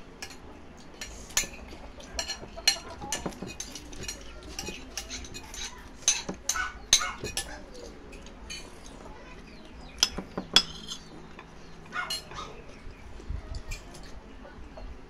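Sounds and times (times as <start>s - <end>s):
spoons clinking on plates: 0.2s - 9.3s, 9.9s - 12.6s.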